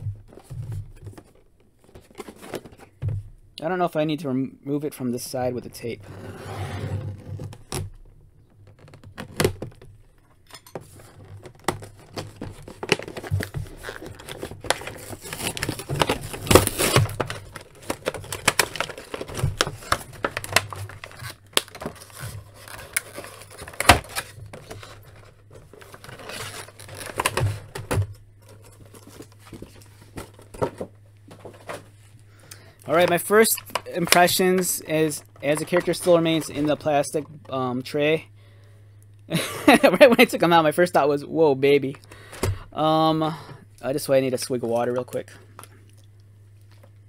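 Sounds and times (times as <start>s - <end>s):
plastic tray crinkling: 10.8s - 32.0s, 32.9s - 37.3s
cardboard tearing: 10.9s - 27.8s.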